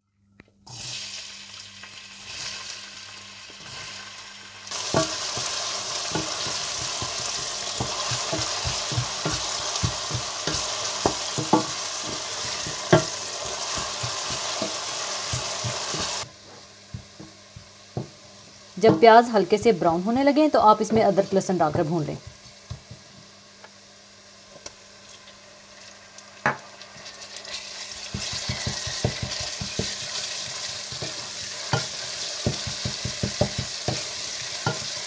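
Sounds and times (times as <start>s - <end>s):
onions sizzling in hot oil: 0.7s - 35.0s
wooden spatula scraping a pot: 4.8s - 16.2s, 28.1s - 35.0s.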